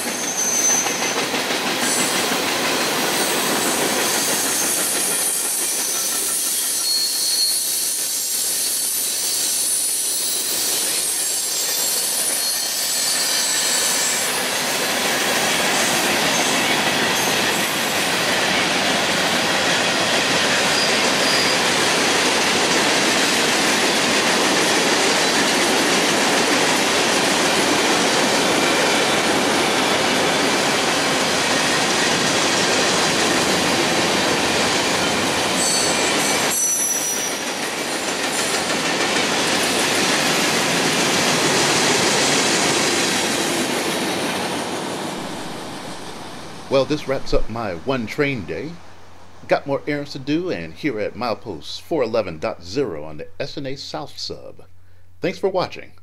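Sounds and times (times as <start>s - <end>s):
train wheel squeals: 0.0s - 22.2s, 34.1s - 40.6s
freight train rumbling on rails: 0.0s - 47.9s.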